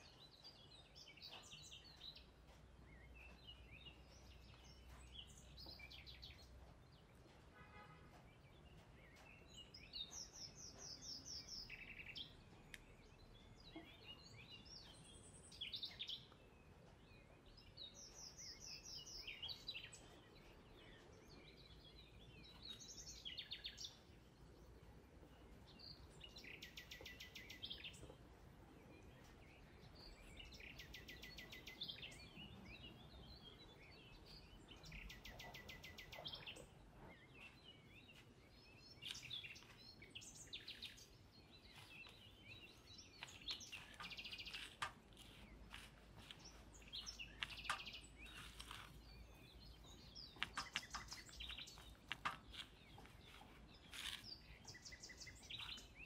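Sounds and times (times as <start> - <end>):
soft clicks and crackles: 12.6 - 13.0, 43.2 - 55.9.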